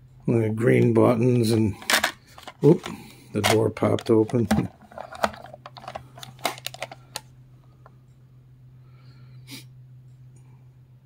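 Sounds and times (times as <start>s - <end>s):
plastic clicks and knocks: 1.9s - 7.3s.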